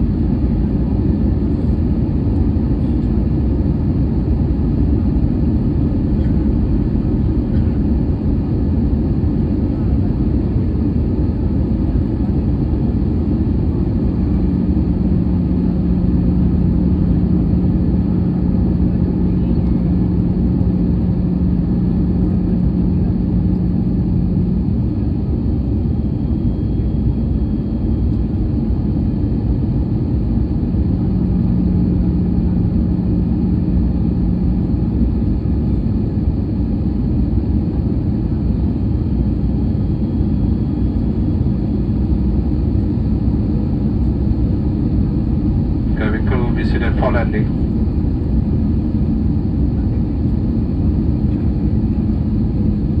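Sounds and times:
airplane cabin rumble: 0:00.0 - 0:53.0
low steady hum: 0:00.0 - 0:53.0.

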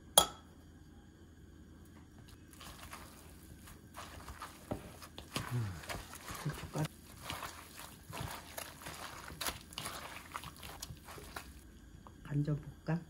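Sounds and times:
seaweed squelching in bowl: 0:02.3 - 0:11.7.

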